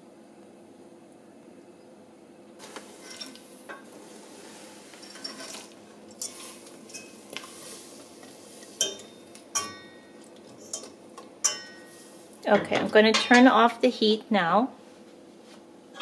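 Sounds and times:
metal clinks against pot: 8.8 - 10.0, 10.7 - 11.9.

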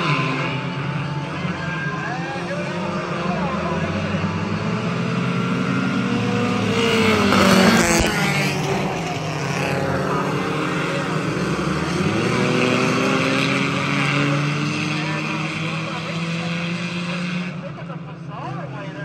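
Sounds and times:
race car engines at speed: 0.0 - 19.0
race car passing close: 0.0 - 19.0.

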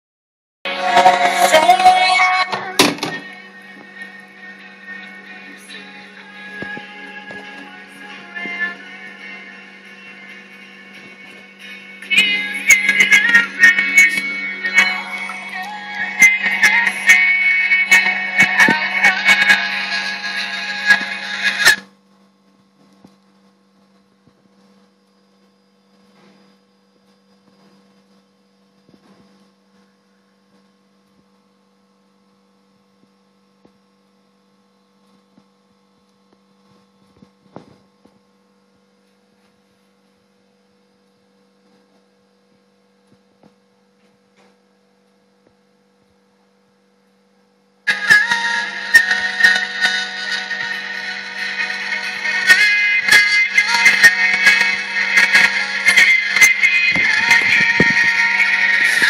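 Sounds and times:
music from phone speaker: 0.7 - 21.8, 47.9 - 59.0
faint electrical hum: 2.0 - 59.0.

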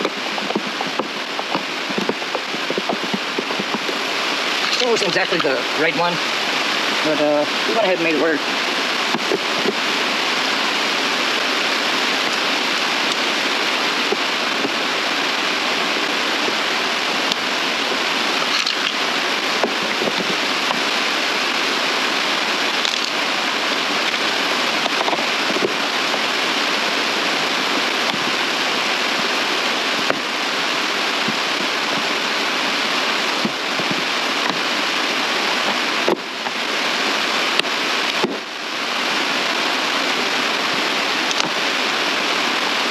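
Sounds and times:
loud rushing hiss: 0.0 - 42.9.

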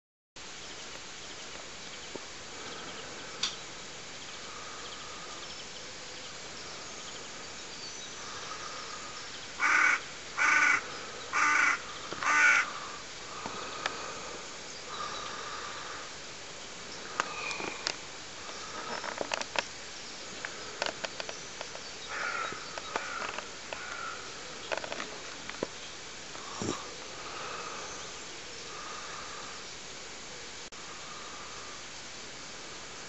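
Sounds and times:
outdoor background noise: 0.4 - 33.0
crow cawing: 9.6 - 13.9, 22.1 - 24.4.

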